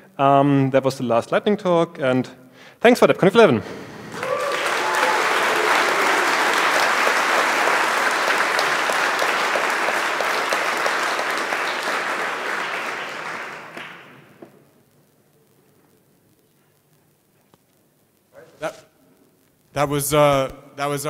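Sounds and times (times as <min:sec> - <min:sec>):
audience applauding: 0:03.9 - 0:14.6.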